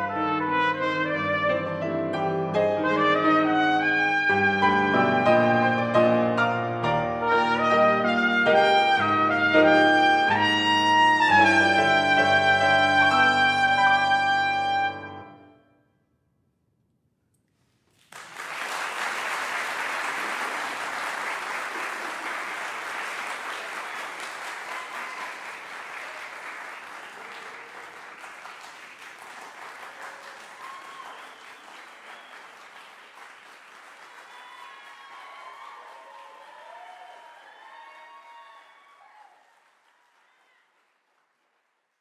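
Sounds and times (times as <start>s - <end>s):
trumpet and piano chord: 0.0s - 15.8s
audience applause: 17.9s - 42.0s.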